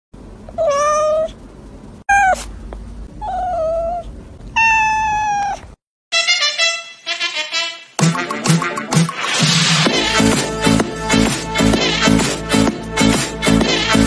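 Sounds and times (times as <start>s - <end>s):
cat meowing: 0.5s - 1.4s, 2.1s - 2.5s, 3.2s - 5.8s
music: 6.1s - 14.0s.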